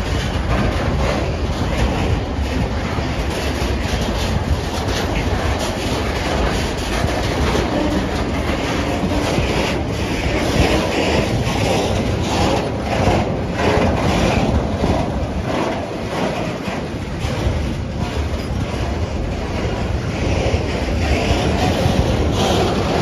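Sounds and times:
freight train wheels on rails: 0:00.0 - 0:23.0.

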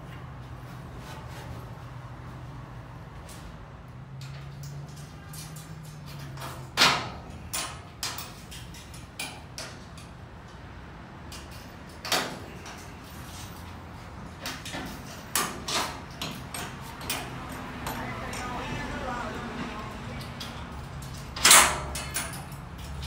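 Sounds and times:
metal shelving knocks and clanks: 0:04.2 - 0:10.2, 0:14.3 - 0:18.1, 0:20.3 - 0:23.0.

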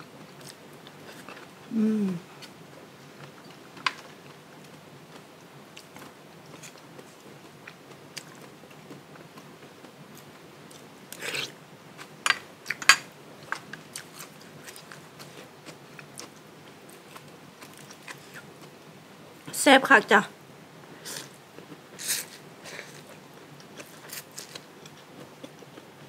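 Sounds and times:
person chewing noodle soup: 0:10.2 - 0:12.8, 0:13.4 - 0:18.7, 0:21.1 - 0:25.9.

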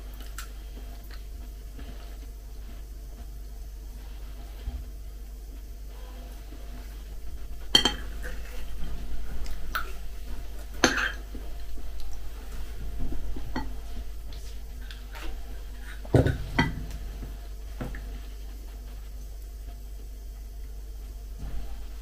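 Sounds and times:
quiet chewing: 0:00.0 - 0:03.4, 0:06.2 - 0:20.9
spoon scraping: 0:07.6 - 0:08.8, 0:09.4 - 0:11.4.

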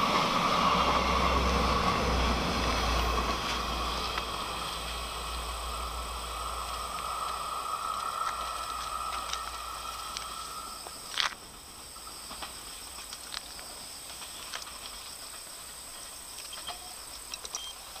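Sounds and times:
insects trilling: 0:00.1 - 0:18.0
faint ticks: 0:06.6 - 0:11.4.

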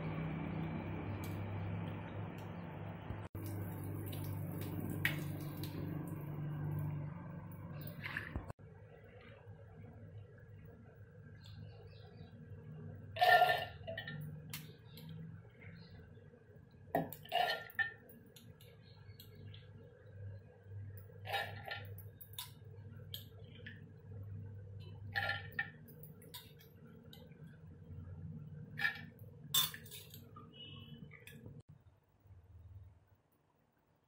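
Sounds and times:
steel pots clinking and knocking: 0:28.8 - 0:30.2.

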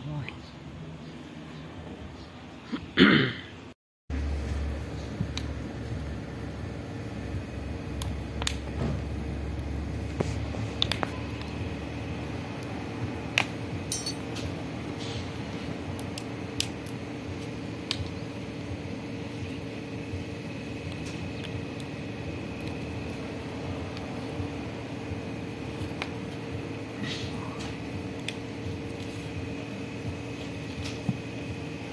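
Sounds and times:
steady low hum: 0:00.0 - 0:31.9
tools clicking and clinking: 0:13.9 - 0:14.5.

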